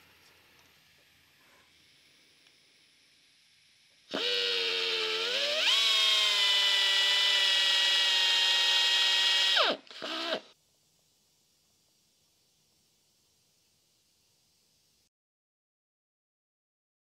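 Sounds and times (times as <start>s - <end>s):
air drill whining: 4.1s - 10.6s.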